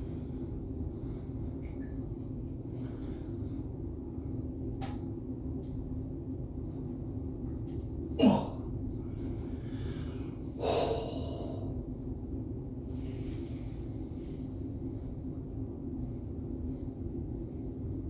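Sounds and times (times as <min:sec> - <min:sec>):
steady low hum: 0:00.0 - 0:18.0
breathy exhale: 0:09.5 - 0:11.8.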